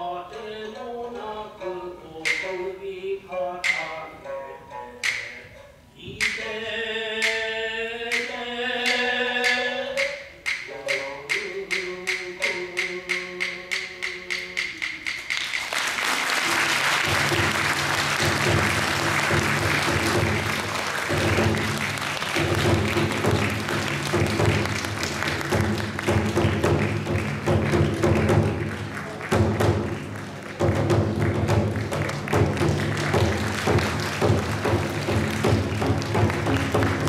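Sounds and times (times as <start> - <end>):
person singing: 0.0 - 15.3
music: 0.0 - 37.0
wooden clapper strikes: 2.3 - 2.5
audience applause: 15.3 - 37.0.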